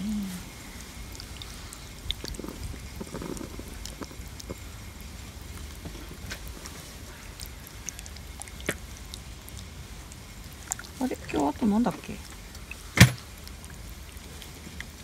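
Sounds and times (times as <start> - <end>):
wind on microphone: 2.1 - 4.2.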